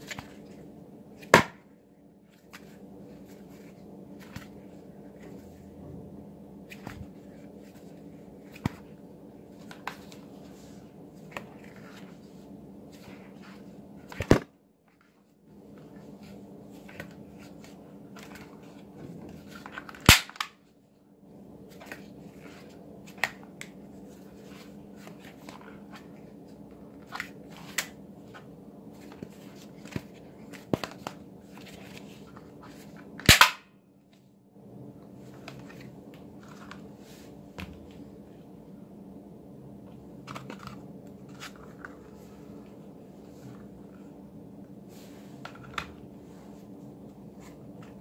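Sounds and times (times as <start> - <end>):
toy cap gun bangs: 20.1 - 20.4, 33.3 - 33.6.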